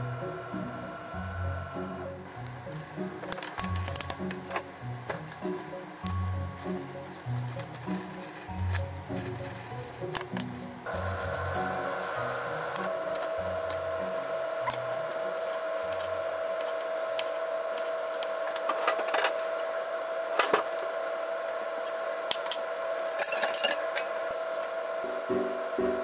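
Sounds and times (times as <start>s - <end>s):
steady tone: 0.0s - 16.6s.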